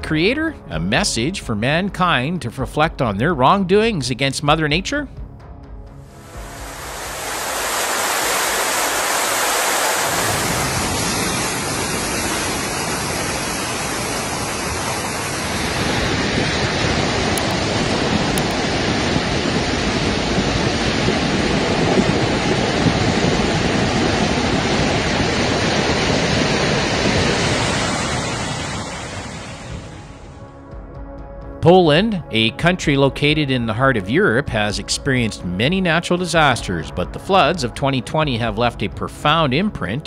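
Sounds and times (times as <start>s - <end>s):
deep rumble: 3.2s - 32.1s
floodwater rushing: 6.1s - 30.3s.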